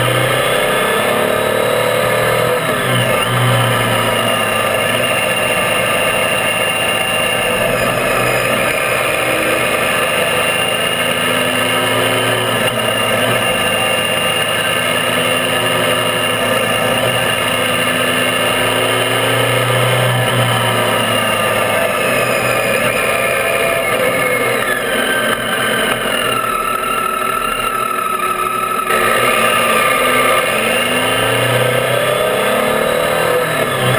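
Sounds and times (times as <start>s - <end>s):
motorcycle engine running: 0.0s - 33.9s
road noise: 0.0s - 33.9s.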